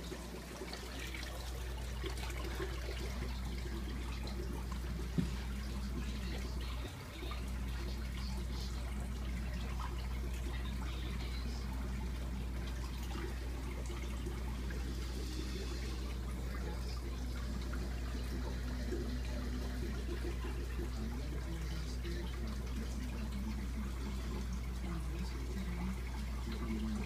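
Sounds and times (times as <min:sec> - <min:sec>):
aquarium water bubbling: 0:00.0 - 0:27.0
low pump hum: 0:00.0 - 0:27.0.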